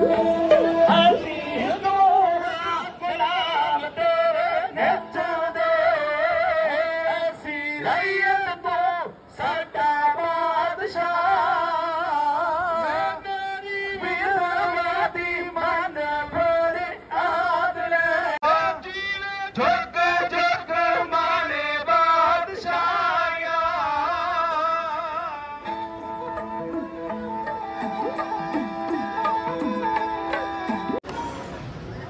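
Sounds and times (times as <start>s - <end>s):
person singing ornamented melody: 0.0s - 8.2s, 25.1s - 31.0s.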